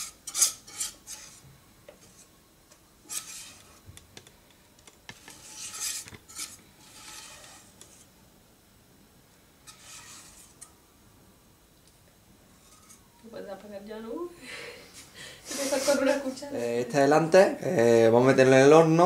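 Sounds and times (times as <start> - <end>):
whisk scraping batter from bowl: 0.0 - 1.4, 3.0 - 3.8, 5.1 - 8.1, 9.6 - 10.7, 12.6 - 13.1.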